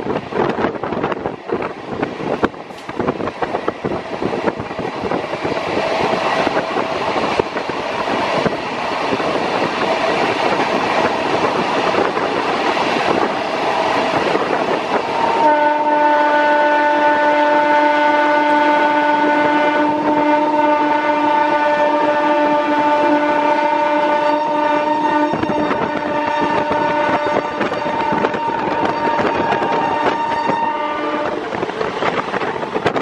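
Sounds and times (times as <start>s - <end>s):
trains rumbling and wheels clattering: 0.0s - 33.0s
loud multi-tone train horn: 12.8s - 31.7s.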